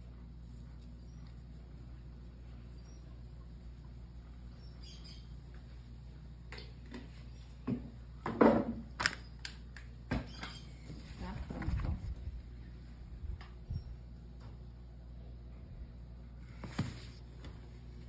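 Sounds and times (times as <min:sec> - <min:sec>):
low steady hum: 0:00.0 - 0:18.0
objects knocking on kitchen counter: 0:07.6 - 0:08.8.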